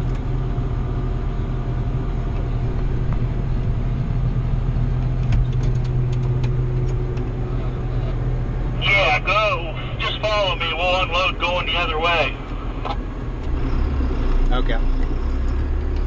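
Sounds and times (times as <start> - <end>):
combine harvester: 0.0 - 16.0
tractor diesel engine drone: 0.0 - 16.0.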